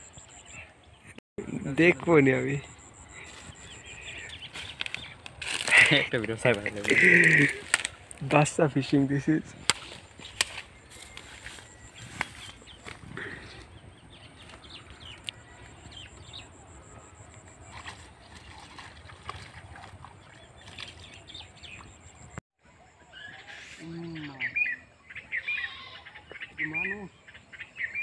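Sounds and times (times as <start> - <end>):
small birds chirping: 0.0 - 22.4, 23.0 - 28.0
steady outdoor hiss: 1.4 - 13.6.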